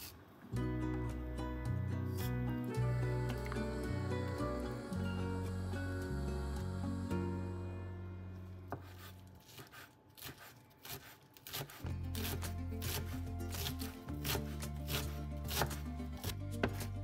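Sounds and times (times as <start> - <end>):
background music: 0.5 - 9.2, 11.7 - 17.0
knife chopping on cutting board: 8.7 - 16.9.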